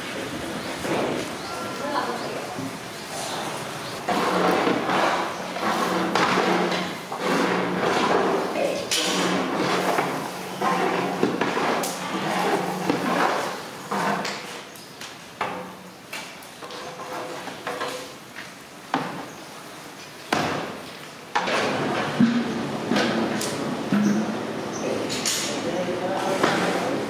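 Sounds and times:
metal ladle scraping metal pot: 4.0 - 14.5.

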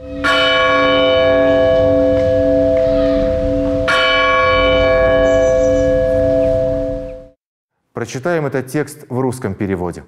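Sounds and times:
bell chimes: 0.0 - 7.4.

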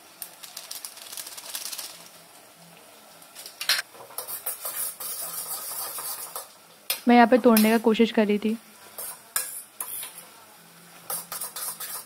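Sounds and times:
metal spoon scraping a pan: 4.1 - 6.6, 8.8 - 10.3, 11.0 - 12.0.

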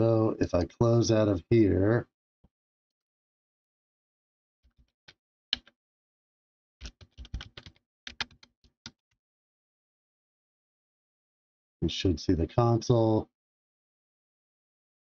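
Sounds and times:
keyboard typing: 6.8 - 9.0.

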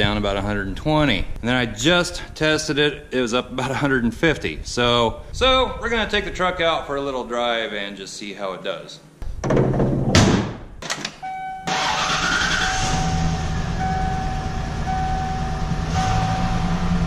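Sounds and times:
knocks and thuds: 9.2 - 11.1
steady warning tone: 11.2 - 11.9, 12.7 - 17.0
truck engine starting and idling: 11.7 - 17.0.

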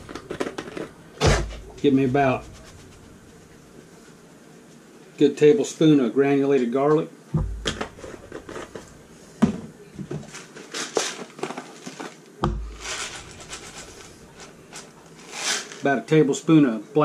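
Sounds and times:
plastic containers clicking: 0.0 - 1.0
light rattling and rustle: 0.0 - 4.2, 7.4 - 15.9.

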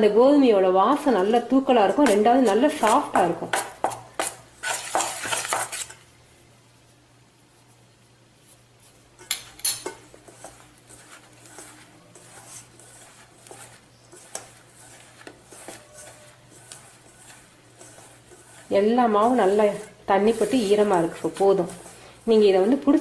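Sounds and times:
hands rubbing flour in bowl: 1.0 - 5.9, 9.9 - 23.0.

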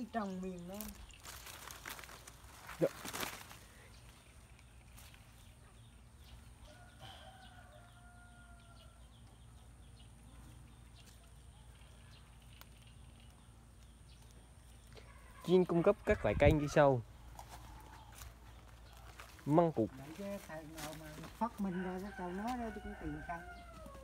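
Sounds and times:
faint rooster crowing: 6.6 - 9.2, 14.9 - 18.5, 21.4 - 24.0.

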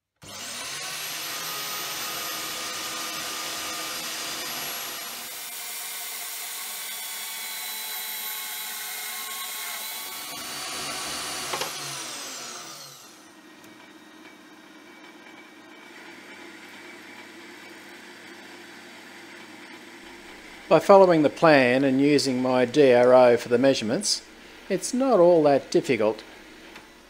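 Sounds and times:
band saw cutting metal: 0.2 - 13.4, 19.7 - 27.0
metal lathe humming: 0.2 - 27.0.

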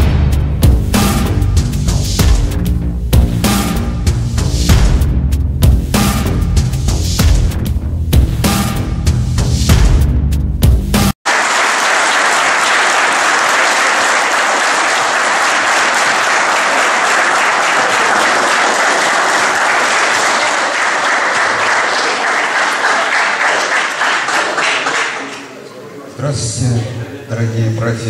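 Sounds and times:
audience applauding: 11.2 - 25.6.

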